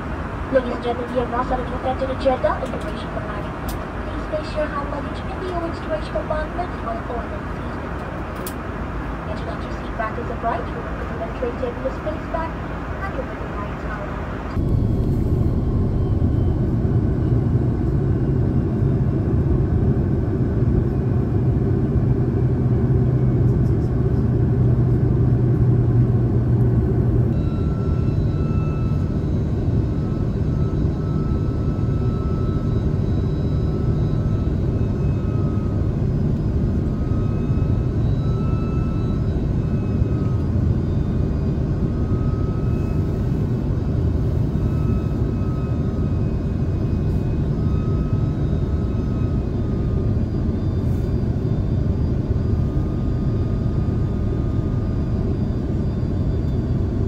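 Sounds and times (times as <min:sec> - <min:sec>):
airliner cabin engine rumble: 0:00.0 - 0:57.0
faint high wavering tone: 0:27.3 - 0:57.0.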